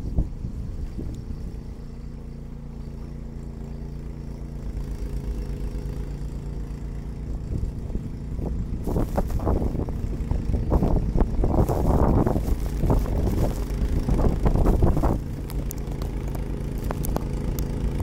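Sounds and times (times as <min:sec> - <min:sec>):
snowblower engine running: 0:00.0 - 0:18.0
snow crackling over microphone: 0:08.4 - 0:18.0.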